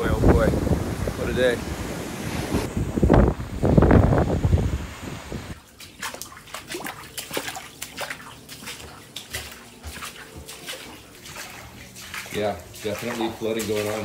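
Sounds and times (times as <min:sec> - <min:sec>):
wind and surf: 0:00.0 - 0:05.6
water splashing on tiled floor: 0:05.6 - 0:14.0.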